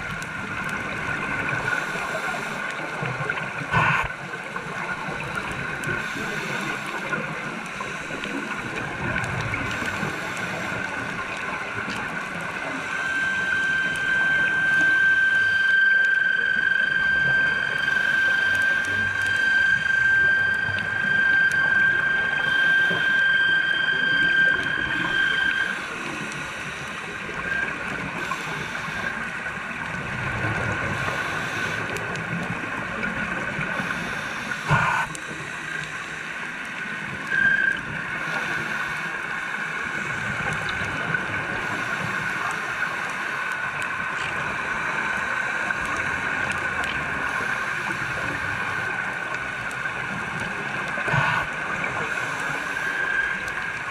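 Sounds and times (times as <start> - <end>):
boat engines whining underwater: 0.0 - 53.9
higher tone: 13.1 - 25.9.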